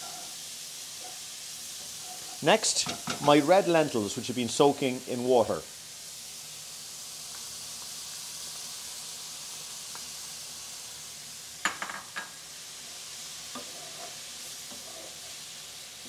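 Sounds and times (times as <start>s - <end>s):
vegetables sizzling in a frying pan: 0.0s - 16.0s
wooden spoon stirring: 13.5s - 15.4s.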